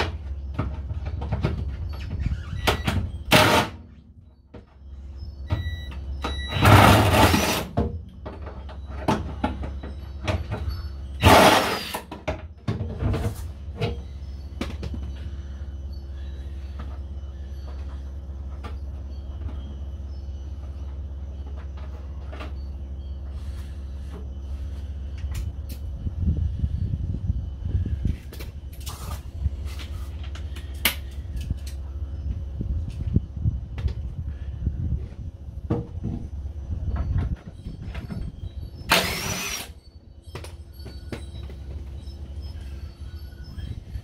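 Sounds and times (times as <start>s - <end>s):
steady low hum: 0.0s - 44.0s
impact wrench bursts: 11.2s - 12.1s, 38.9s - 39.8s.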